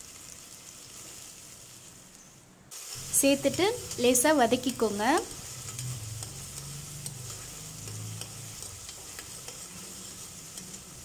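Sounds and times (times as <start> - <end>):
onions sizzling in hot oil: 0.0 - 11.0
spoon scraping a metal pot: 5.1 - 11.0.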